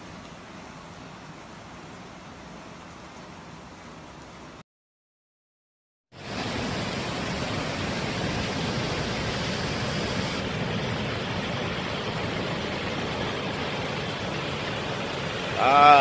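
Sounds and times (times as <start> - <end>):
river rushing: 6.2 - 16.0.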